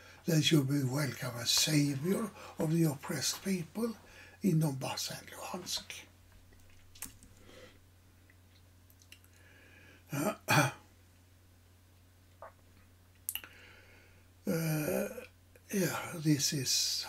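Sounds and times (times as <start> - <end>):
steady low hum: 0.0 - 17.0
man clearing his throat: 10.1 - 10.8.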